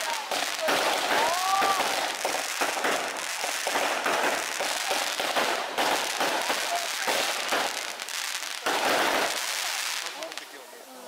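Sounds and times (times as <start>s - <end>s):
water fireworks hissing and popping: 0.0s - 11.0s.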